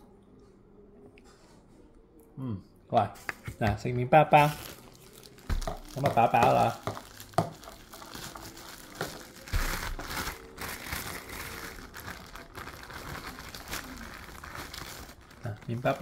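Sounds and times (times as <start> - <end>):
rustling and crinkling: 4.4 - 16.0.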